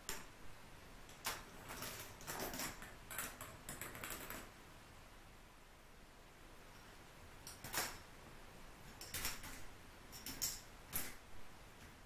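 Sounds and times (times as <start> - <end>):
plastic balls clicking on track: 1.1 - 4.5, 9.0 - 11.2.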